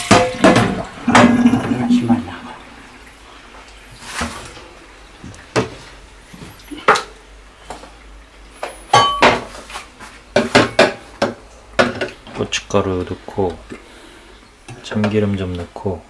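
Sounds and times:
glass clinking: 8.9s - 9.5s.

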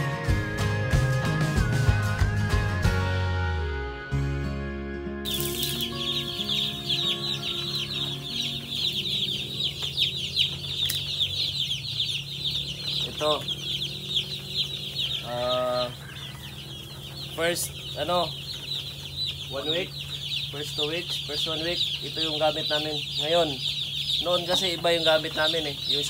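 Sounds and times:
chicks peeping: 5.3s - 26.0s.

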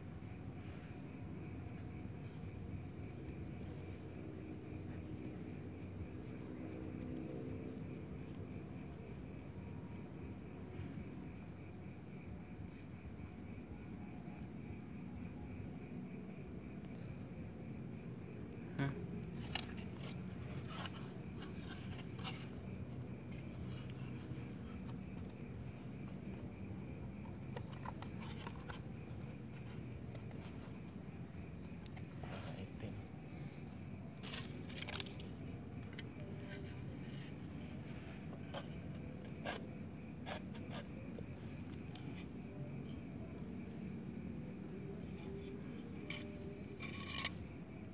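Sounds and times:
crickets chirping: 0.0s - 47.9s
soft knocks and scrapes: 19.2s - 31.0s, 34.1s - 42.3s, 45.9s - 47.5s.

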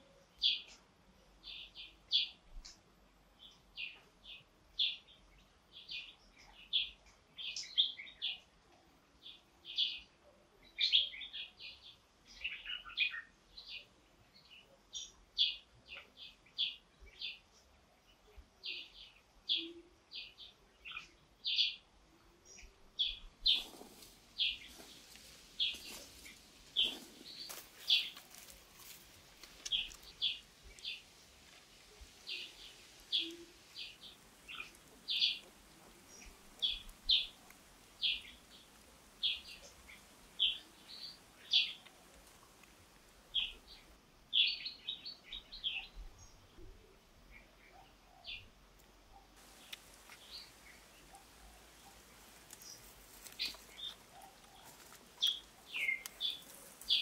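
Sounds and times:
small bird chirping: 0.0s - 2.8s, 3.4s - 8.5s, 9.2s - 57.0s
rustling crackling noise: 23.4s - 43.3s, 49.4s - 57.0s.

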